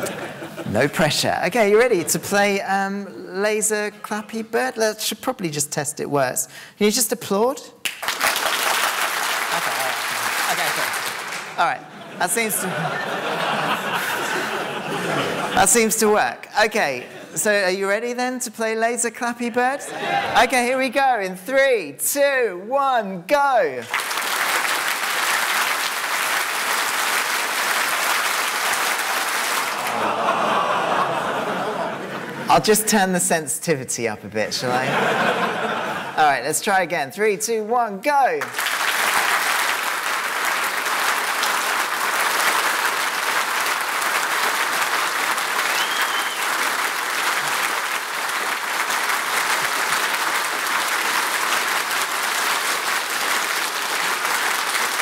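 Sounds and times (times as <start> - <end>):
large audience clapping: 0.0 - 0.3, 7.8 - 15.8, 23.7 - 32.4, 38.4 - 55.0.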